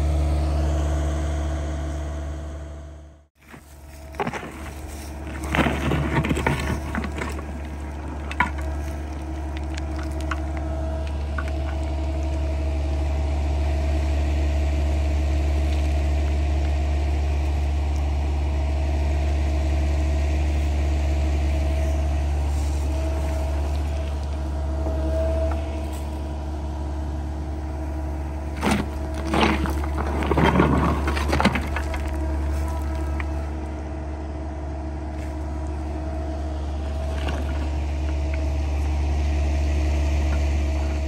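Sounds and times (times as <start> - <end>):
excavator diesel engine whining: 0.0 - 41.0
bucket scraping through dirt and stones: 3.4 - 12.0, 28.4 - 33.6, 36.6 - 39.1.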